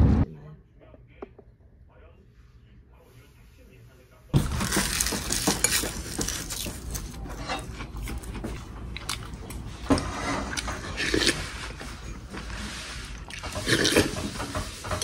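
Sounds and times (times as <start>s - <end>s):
utensils clinking on ceramic bowls: 4.6s - 8.2s
chewing: 5.4s - 9.6s, 13.2s - 14.2s.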